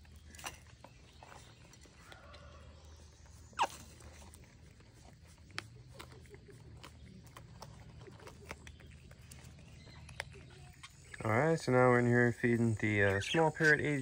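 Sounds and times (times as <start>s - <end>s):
prairie dogs chewing: 0.0s - 14.0s
prairie dog squeak: 3.4s - 4.3s.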